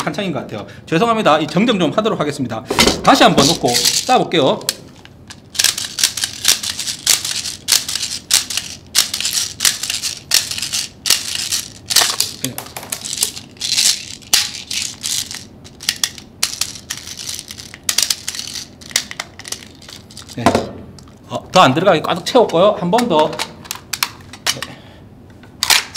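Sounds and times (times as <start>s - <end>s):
plastic pellets rattling into magazine: 3.4s - 20.4s.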